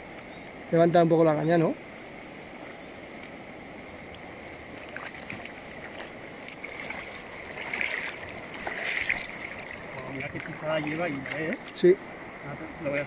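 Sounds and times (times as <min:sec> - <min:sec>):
river water running: 0:00.0 - 0:13.0
light splashing: 0:04.1 - 0:11.9.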